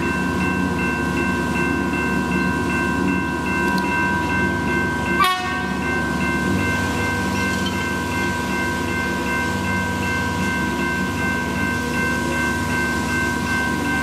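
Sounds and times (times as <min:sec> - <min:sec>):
level crossing bells ringing: 0:00.0 - 0:14.0.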